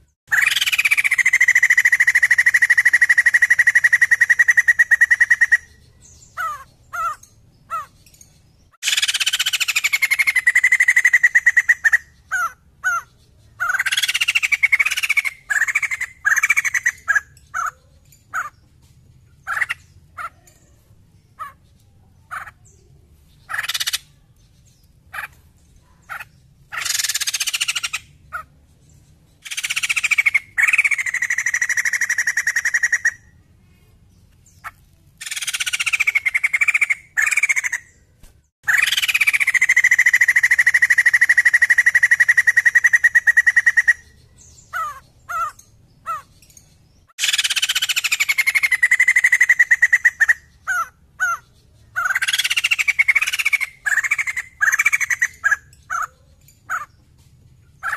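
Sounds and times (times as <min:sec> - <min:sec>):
laughingthrush calling: 0:00.0 - 0:08.0, 0:08.8 - 0:18.6, 0:19.4 - 0:20.5, 0:21.4 - 0:22.7, 0:23.4 - 0:24.2, 0:25.1 - 0:28.6, 0:29.4 - 0:33.4, 0:34.6 - 0:38.0, 0:38.6 - 0:46.4, 0:47.1 - 0:57.0.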